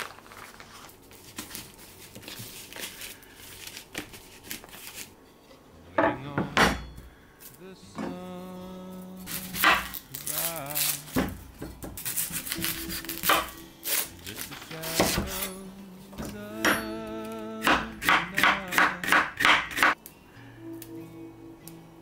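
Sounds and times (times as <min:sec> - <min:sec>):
soft background music: 0:05.2 - 0:22.0
knife chopping on wooden board: 0:14.9 - 0:15.4, 0:17.6 - 0:20.0.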